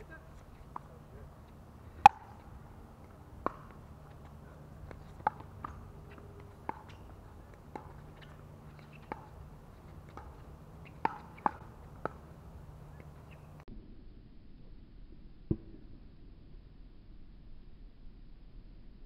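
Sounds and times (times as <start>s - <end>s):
paddles hitting plastic ball: 0.4s - 12.3s.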